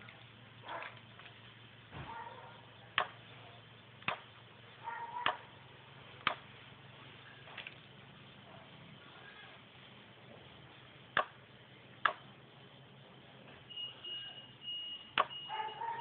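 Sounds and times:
low steady hum: 0.0s - 16.0s
sharp clicks: 3.0s - 3.2s, 6.2s - 6.4s, 12.0s - 12.3s.

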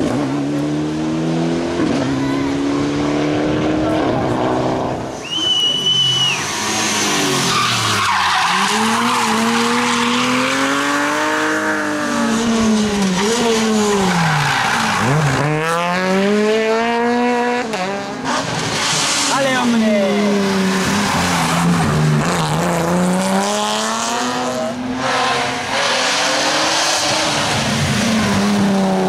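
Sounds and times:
tyres screeching on asphalt: 3.8s - 16.2s, 17.7s - 29.0s
car engine revving hard: 6.4s - 29.0s.

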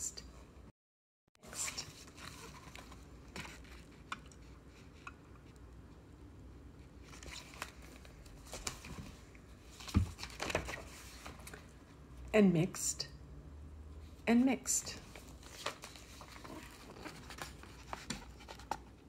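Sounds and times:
book pages rustling: 1.5s - 5.6s, 7.0s - 11.7s, 15.0s - 19.0s.

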